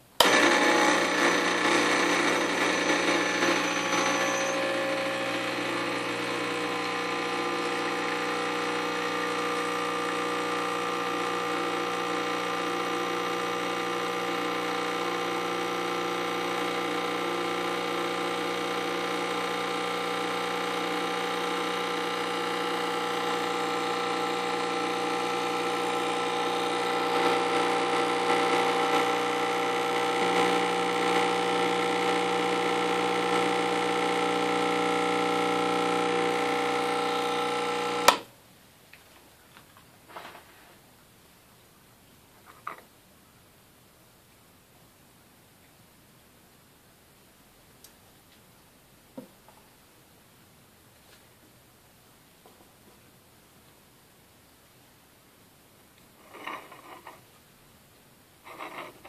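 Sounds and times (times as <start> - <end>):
espresso machine pump humming: 0.2 - 38.3.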